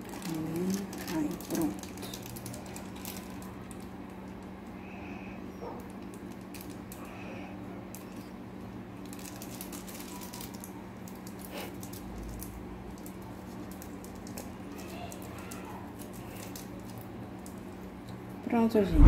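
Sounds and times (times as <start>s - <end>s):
plastic bag crinkling: 0.0s - 4.5s, 5.8s - 7.1s, 9.0s - 18.3s.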